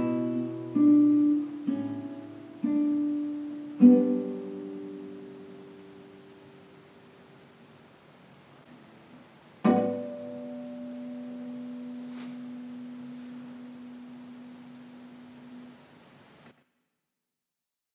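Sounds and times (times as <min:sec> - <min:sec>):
classical guitar chord ringing: 0:00.0 - 0:06.9, 0:09.6 - 0:15.9.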